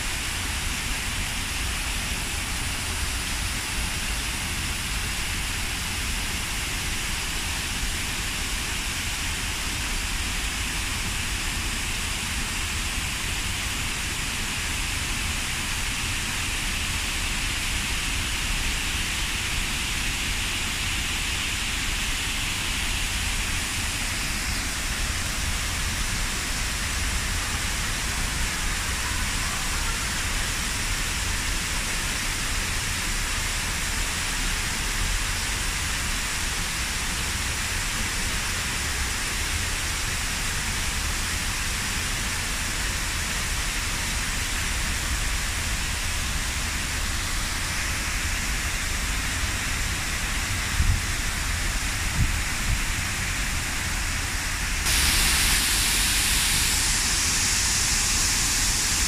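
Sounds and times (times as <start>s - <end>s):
waterfall rushing and splashing: 0.0s - 59.0s.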